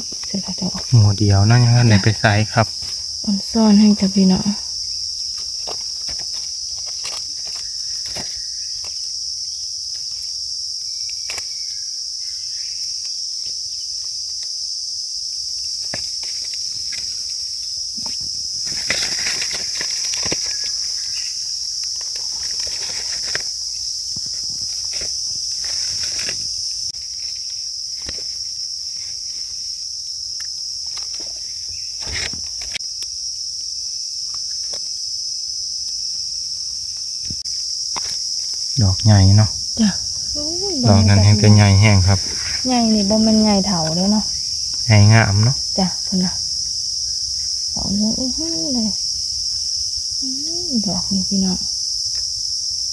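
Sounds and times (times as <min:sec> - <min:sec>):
high-pitched insect drone: 0:00.0 - 0:52.9
dry leaves crackling and rustling: 0:05.2 - 0:14.6, 0:15.6 - 0:32.8.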